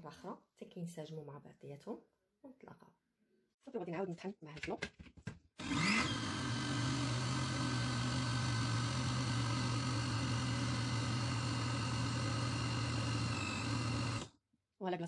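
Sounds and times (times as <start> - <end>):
blender motor humming: 5.6 - 14.3.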